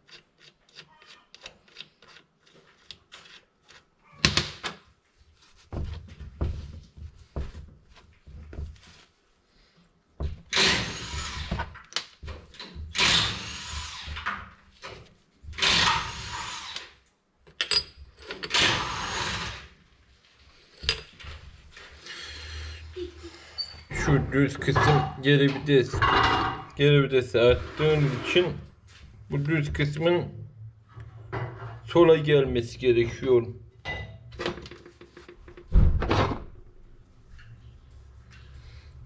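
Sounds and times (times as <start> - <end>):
metal parts clicking and knocking: 17.4 - 18.8, 20.7 - 21.4.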